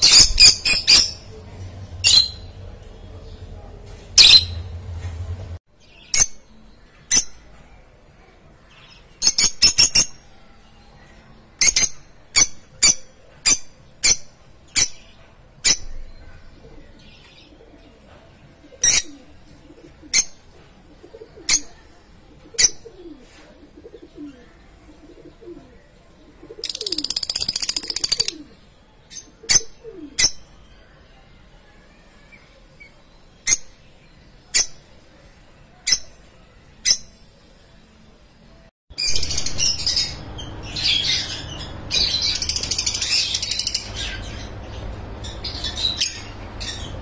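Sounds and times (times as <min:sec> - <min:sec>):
lovebirds chirping: 0:00.0 - 0:07.4, 0:22.4 - 0:30.9, 0:39.0 - 0:47.0.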